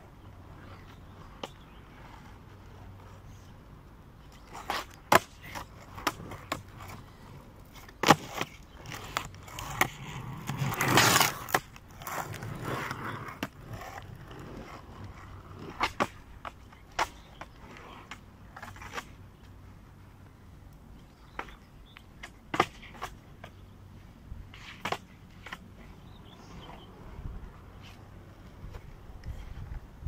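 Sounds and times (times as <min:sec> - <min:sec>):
skateboard wheels rolling on asphalt: 0:00.0 - 0:30.0
skateboard clacking on pavement: 0:04.2 - 0:19.6, 0:21.2 - 0:23.6, 0:24.5 - 0:25.9.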